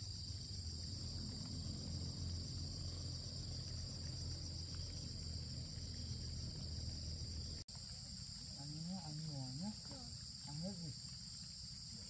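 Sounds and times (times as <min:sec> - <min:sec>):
crickets trilling: 0:00.0 - 0:12.0
low rumble: 0:00.4 - 0:07.6.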